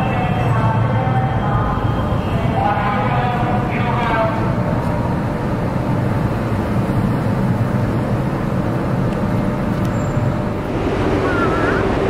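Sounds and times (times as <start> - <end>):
low vehicle rumble: 2.7 - 12.0.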